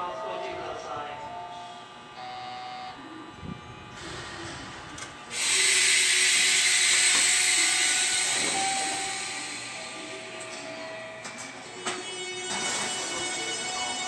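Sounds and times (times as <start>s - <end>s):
air brakes hissing: 5.3s - 10.7s.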